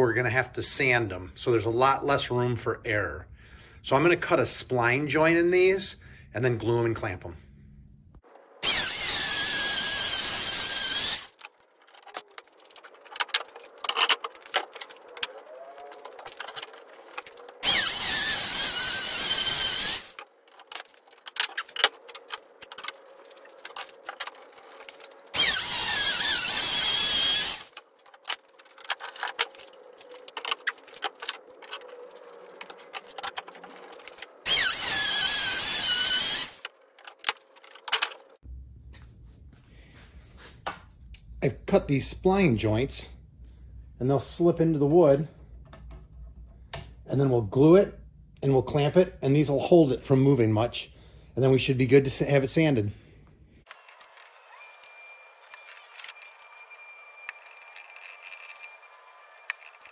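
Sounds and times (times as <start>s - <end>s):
trim router cutting wood: 8.6s - 11.4s, 15.2s - 20.2s, 25.3s - 27.8s, 33.8s - 36.7s, 53.7s - 59.9s
handling clicks and knocks: 11.4s - 17.6s, 27.7s - 34.4s, 36.6s - 38.4s.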